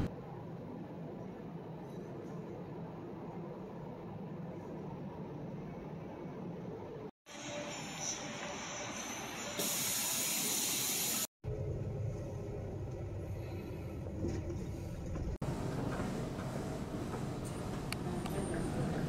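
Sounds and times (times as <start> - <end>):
bus air brake hiss: 8.0 - 11.3
bus engine rumble: 11.5 - 19.0.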